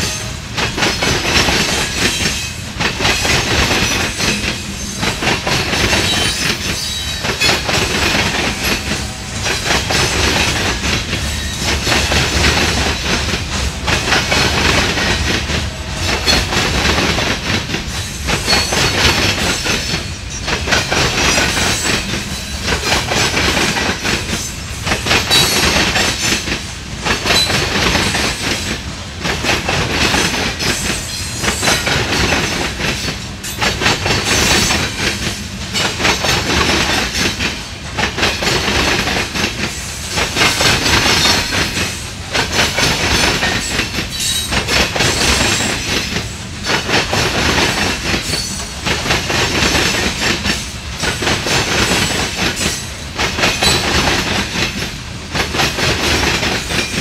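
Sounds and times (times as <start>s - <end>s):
train wheels clattering over rails: 0.0s - 57.0s.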